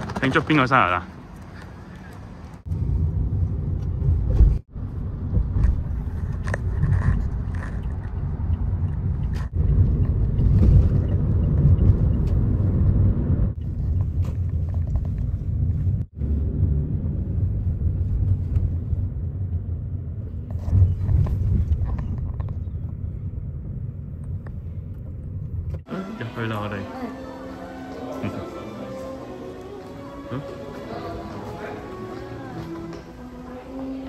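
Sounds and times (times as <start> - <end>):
car interior road rumble: 2.2 - 25.9.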